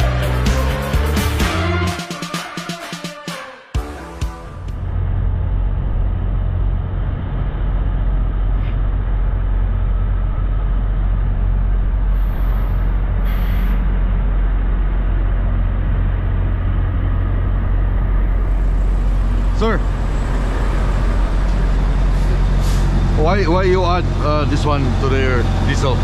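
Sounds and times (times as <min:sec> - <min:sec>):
diesel truck engines idling: 0:04.4 - 0:26.0
air hissing: 0:12.1 - 0:13.9, 0:22.1 - 0:23.0.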